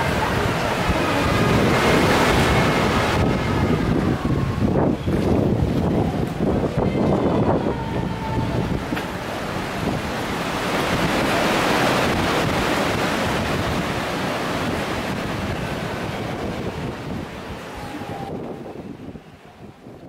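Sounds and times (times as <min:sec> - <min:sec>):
surf washing against rocks: 0:00.0 - 0:19.3
wind: 0:00.0 - 0:20.0.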